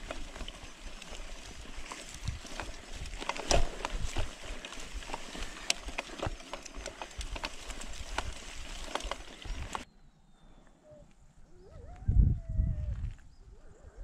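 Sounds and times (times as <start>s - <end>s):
bike clattering over stones: 0.0s - 9.8s.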